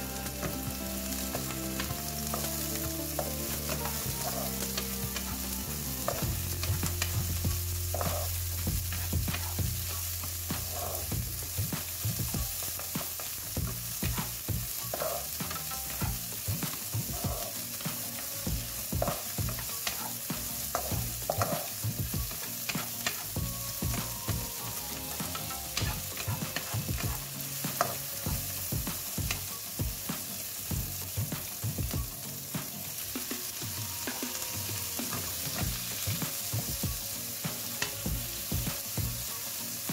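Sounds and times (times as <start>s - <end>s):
onion and chilies sizzling: 0.0s - 39.9s
wooden spatula scraping pan: 7.9s - 11.1s.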